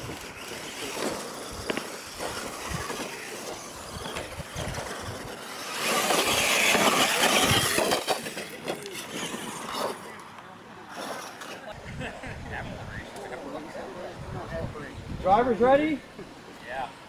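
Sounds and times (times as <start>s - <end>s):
rc truck motors running: 0.0s - 11.6s
tyres on loose dirt: 0.0s - 12.0s.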